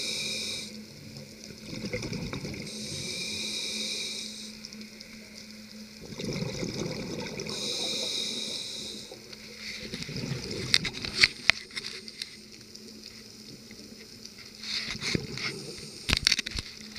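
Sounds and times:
regulator inhalation hiss: 0:00.0 - 0:00.9, 0:02.7 - 0:05.0, 0:07.5 - 0:09.8, 0:14.6 - 0:16.2
bubbles crackling and popping: 0:01.0 - 0:02.8, 0:05.9 - 0:08.1, 0:09.1 - 0:16.9.

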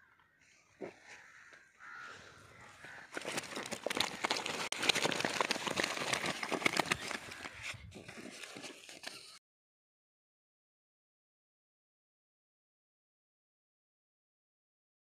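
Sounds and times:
plastic sacks crinkling and rustling: 0:02.9 - 0:09.4.

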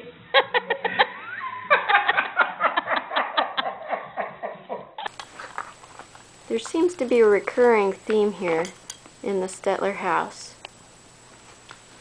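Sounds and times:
person laughing: 0:00.3 - 0:05.1.

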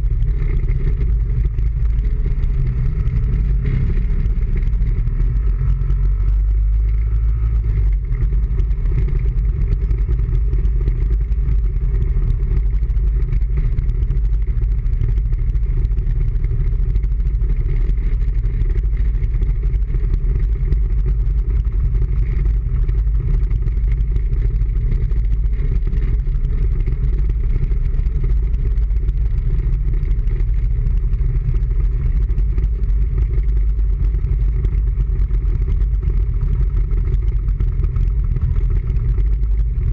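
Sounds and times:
small vehicle engine cruising: 0:00.0 - 0:39.9
wind rumble on microphone: 0:00.0 - 0:39.9.

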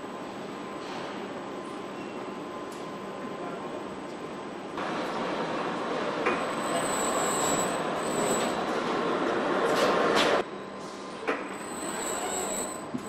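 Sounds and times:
assembly line machinery noise: 0:04.8 - 0:13.0.

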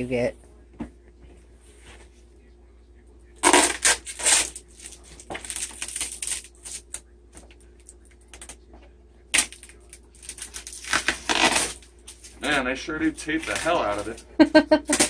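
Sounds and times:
tape ripping: 0:03.4 - 0:07.0, 0:09.3 - 0:12.6, 0:13.4 - 0:14.2
tape and cardboard crackling: 0:03.4 - 0:08.6, 0:09.3 - 0:12.6, 0:13.3 - 0:14.2.

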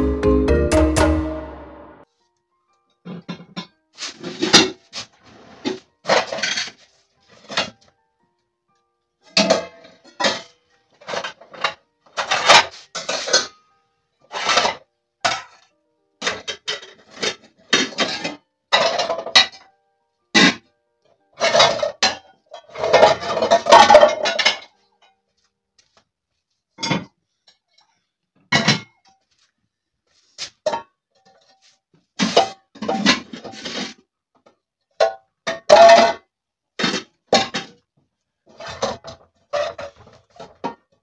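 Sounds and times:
metal pots clanking: 0:03.0 - 0:04.8, 0:09.3 - 0:13.5, 0:16.2 - 0:19.6, 0:21.4 - 0:24.7.

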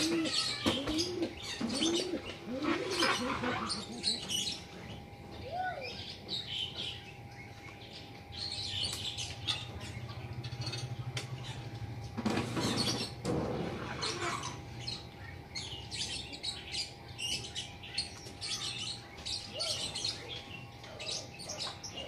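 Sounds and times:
bird cooing: 0:00.0 - 0:06.0.

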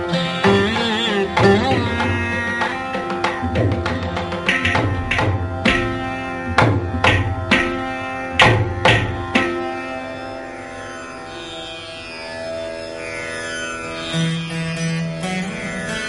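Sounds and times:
hand drum strokes: 0:00.0 - 0:09.6
steady drone: 0:00.0 - 0:14.9
plucked veena notes: 0:00.0 - 0:16.0.

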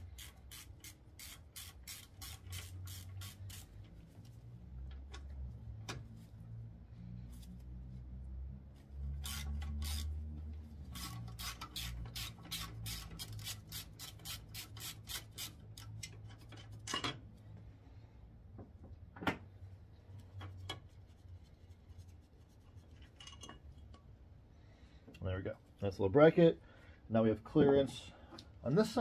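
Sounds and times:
ratchet clicking: 0:00.0 - 0:03.7, 0:09.1 - 0:10.2, 0:10.8 - 0:16.5.

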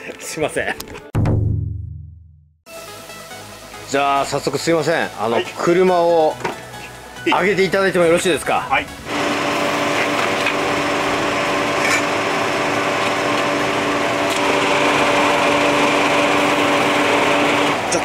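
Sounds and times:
vehicle lift motor humming: 0:09.0 - 0:18.0.

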